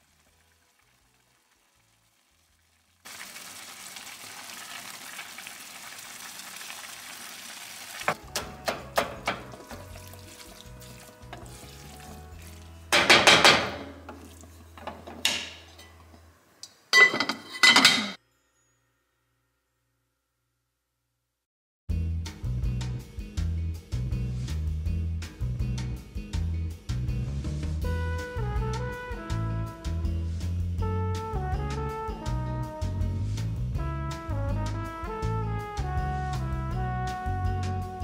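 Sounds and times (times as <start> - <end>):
meat sizzling in a frying pan: 3.0 - 8.2
wooden spoon scraping a pan: 9.2 - 12.6.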